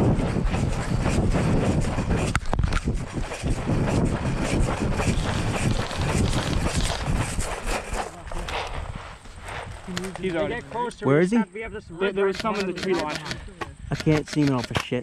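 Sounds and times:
wind buffeting microphone: 0.0s - 14.6s
sharp clicks: 12.2s - 15.0s.

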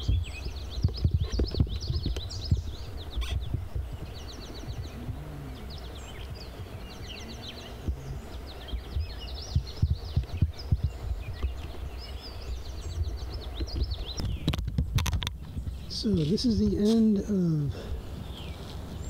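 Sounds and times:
thumps on microphone: 0.0s - 5.3s, 7.8s - 11.8s, 13.5s - 15.8s
birds singing: 0.0s - 19.0s
low rumble: 0.0s - 19.0s.

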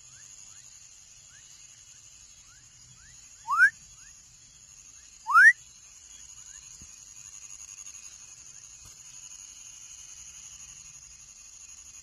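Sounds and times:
frog whistled calls: 3.0s - 4.1s, 5.2s - 5.6s.

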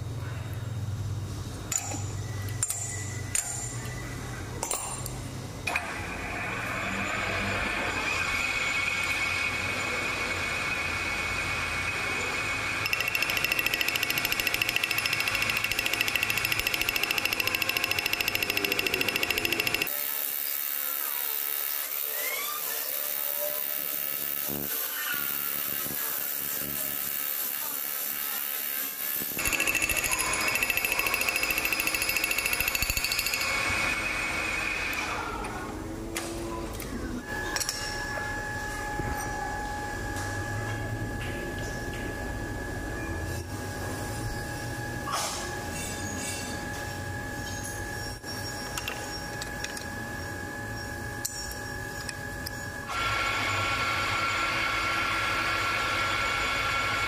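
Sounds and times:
workshop machinery hum: 0.0s - 57.0s
two-note machine whine: 6.6s - 20.0s
metal lathe cutting: 7.2s - 34.8s.

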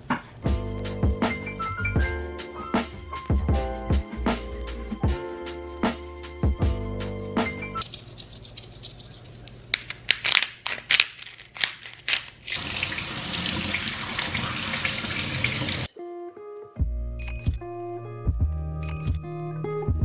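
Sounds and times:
tap water running: 12.5s - 15.9s.

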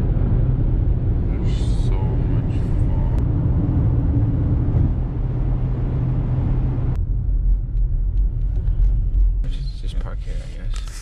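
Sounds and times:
car road noise rumble: 0.0s - 11.0s.

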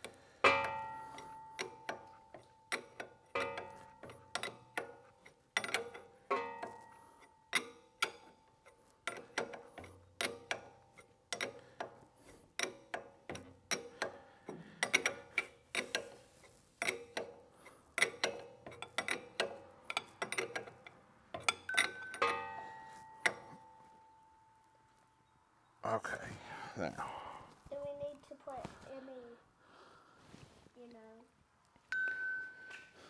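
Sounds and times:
wrench clinking on metal fittings: 0.0s - 24.2s.

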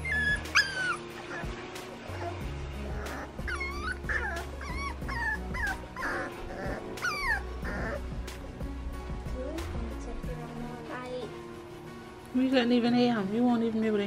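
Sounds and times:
puppy whining: 0.0s - 8.6s.

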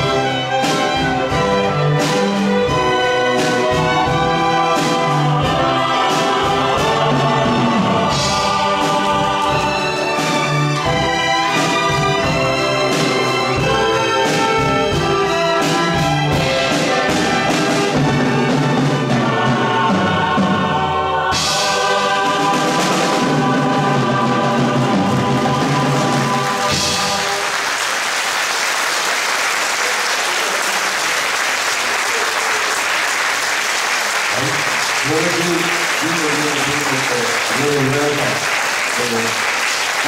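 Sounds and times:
choir and orchestra with brass: 0.0s - 27.9s, 29.1s - 40.0s
audience applauding: 26.2s - 40.0s.

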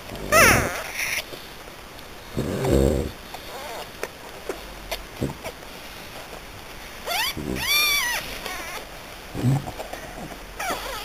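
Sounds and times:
puppy squealing: 0.3s - 1.2s, 7.0s - 8.9s, 9.9s - 11.0s.

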